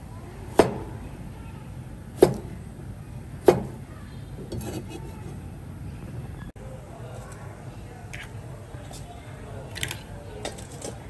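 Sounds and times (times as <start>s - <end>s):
cleaver chopping on plastic board: 0.5s - 1.0s, 2.2s - 2.6s, 3.4s - 3.8s.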